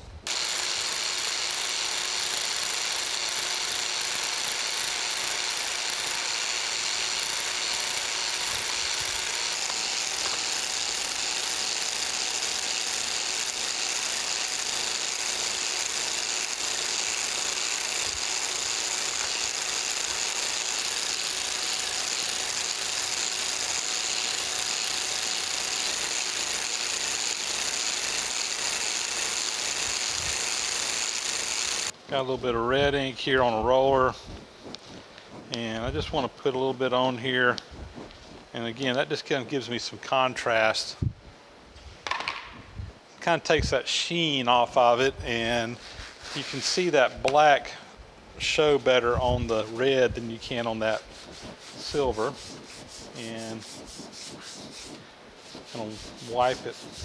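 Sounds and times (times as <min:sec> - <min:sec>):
power scraper blade chattering: 0:00.3 - 0:32.0.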